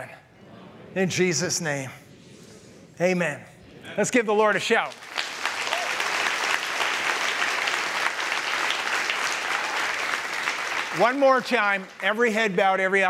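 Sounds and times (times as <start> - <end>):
crowd applauding and cheering: 4.9 - 12.6.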